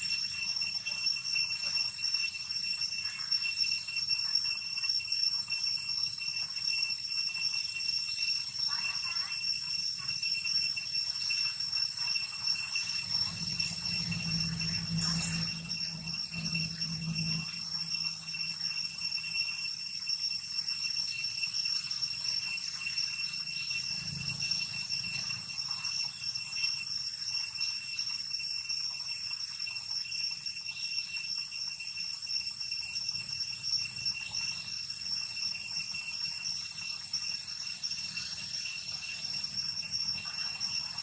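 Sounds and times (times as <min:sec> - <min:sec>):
cicadas buzzing: 0:07.6 - 0:28.1, 0:28.8 - 0:41.0.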